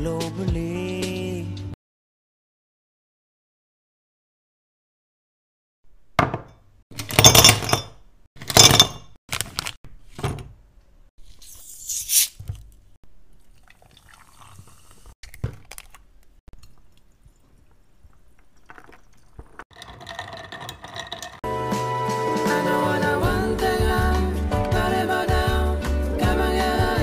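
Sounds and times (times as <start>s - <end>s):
soda pouring over ice: 13.4s - 15.1s
straw stirring ice: 18.2s - 21.4s
ice clattering into glass: 18.6s - 21.4s.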